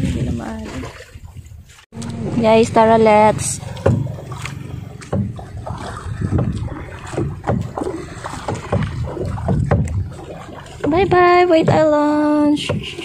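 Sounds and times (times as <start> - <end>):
water sloshing against hull: 0.0 - 13.0
steady low hum: 2.0 - 12.0.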